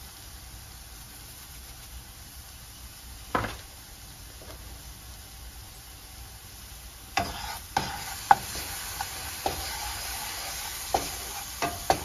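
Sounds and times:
food sizzling in skillet: 0.0 - 12.0
wooden spoon scraping skillet: 7.2 - 12.0.

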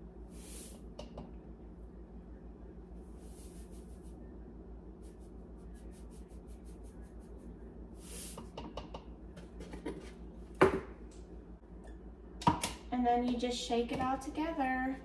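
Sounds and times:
salt pouring hiss: 0.3 - 0.8, 8.0 - 8.4
object knocked on counter: 10.6 - 10.9.

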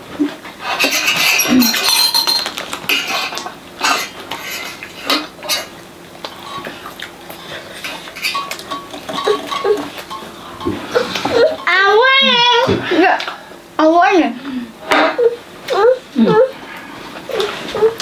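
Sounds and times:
cutlery clinking on metal plates: 0.6 - 5.8, 7.8 - 11.8.

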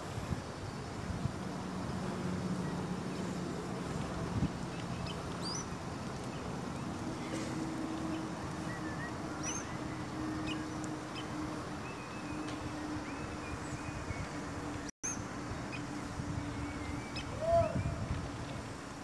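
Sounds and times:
bird chirps: 8.6 - 11.3.

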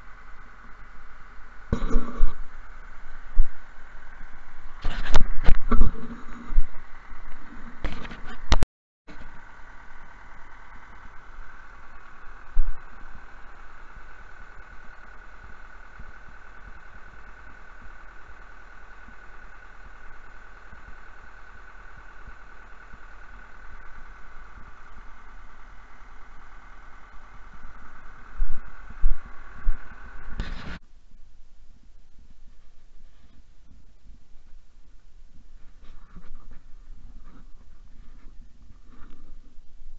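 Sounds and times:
tractor engine idling: 0.0 - 39.9.

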